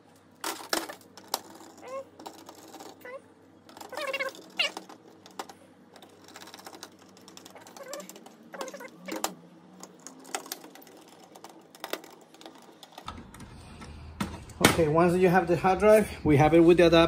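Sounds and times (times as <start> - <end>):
small metal clicks and rattles: 0.4 - 13.1.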